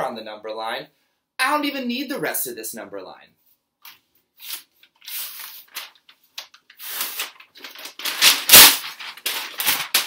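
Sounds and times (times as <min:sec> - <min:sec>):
paper ripping and crumpling: 0:04.4 - 0:10.0.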